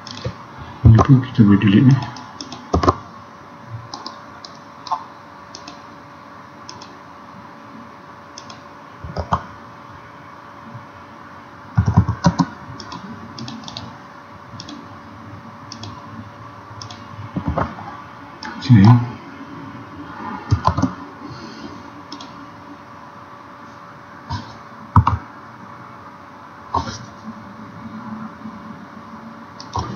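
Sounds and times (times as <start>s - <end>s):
faint steady hum: 0.0s - 29.9s
keyboard keystrokes: 15.7s - 16.0s, 20.5s - 20.9s.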